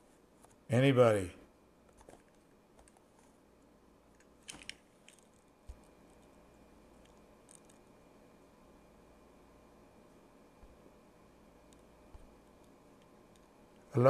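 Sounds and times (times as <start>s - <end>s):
faint clicks and taps: 1.9s - 3.4s, 11.6s - 13.9s.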